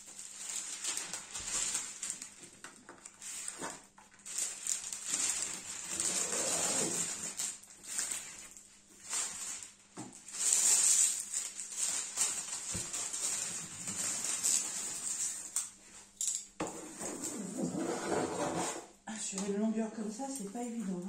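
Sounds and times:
plastic sheet rustling and crinkling: 0.0s - 16.2s.

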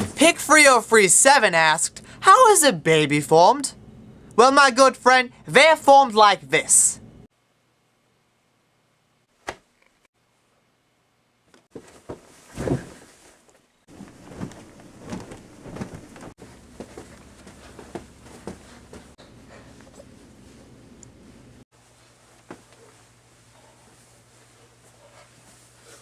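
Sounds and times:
plush toys handled: 11.7s - 19.1s
soft thump: 11.8s - 13.1s.

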